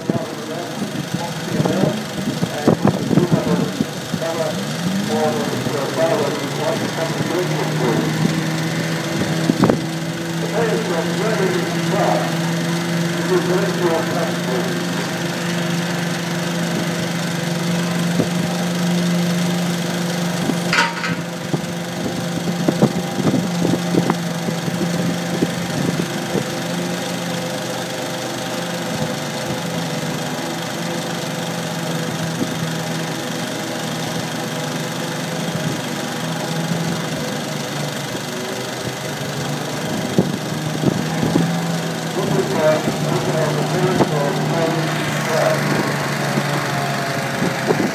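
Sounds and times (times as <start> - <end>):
engine running steadily: 0.0 - 47.9
knocks and clatter: 20.7 - 21.6.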